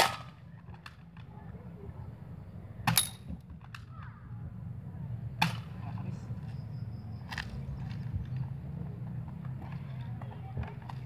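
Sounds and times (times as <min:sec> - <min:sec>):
airsoft gun shots: 0:00.0 - 0:00.3.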